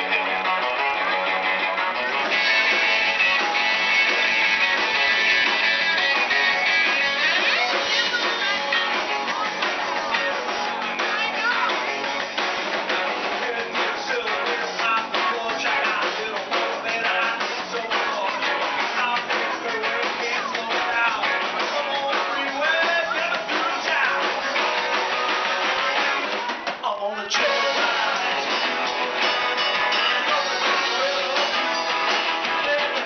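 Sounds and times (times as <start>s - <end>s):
drums: 0.0s - 33.0s
electric guitars: 0.0s - 33.0s
person singing into a microphone: 13.2s - 25.4s, 26.8s - 28.8s, 29.9s - 33.0s.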